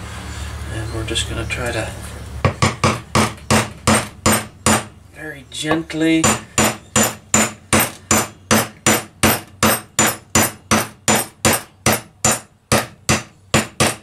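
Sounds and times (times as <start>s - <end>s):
hammer tapping on metal: 2.5s - 4.9s, 6.2s - 14.0s.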